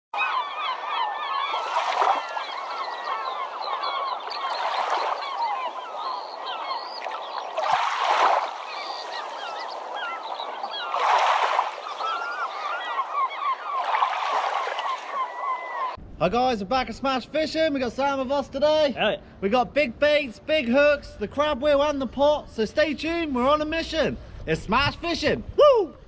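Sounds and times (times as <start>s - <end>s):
flock of birds calling: 0.2s - 16.0s.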